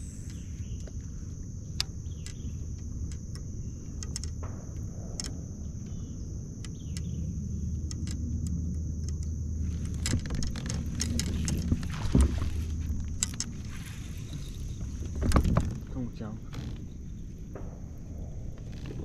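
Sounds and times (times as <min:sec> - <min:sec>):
high insect drone: 0:00.0 - 0:19.0
wind rumbling on microphone: 0:00.0 - 0:19.0
fishing reel clicking and rattling: 0:01.8 - 0:04.4, 0:07.8 - 0:13.8.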